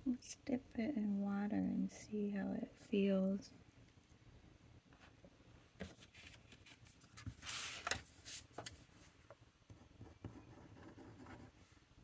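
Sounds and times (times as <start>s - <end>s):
paper card rustling: 5.8s - 8.9s.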